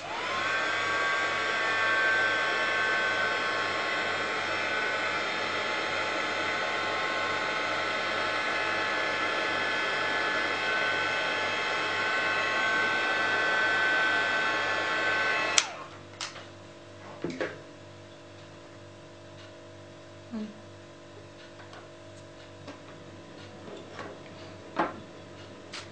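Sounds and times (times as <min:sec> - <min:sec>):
heat gun blowing with fan whine: 0:00.0 - 0:16.4
heat gun switch click: 0:15.6 - 0:16.4.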